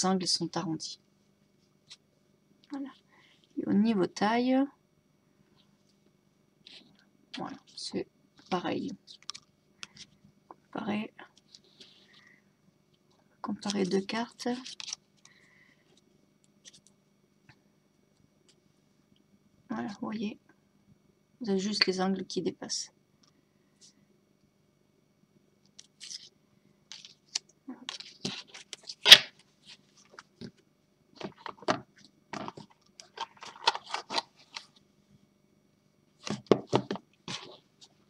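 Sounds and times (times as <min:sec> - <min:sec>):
cards clicking and scraping: 0:25.8 - 0:26.3, 0:26.9 - 0:30.6, 0:32.4 - 0:34.8.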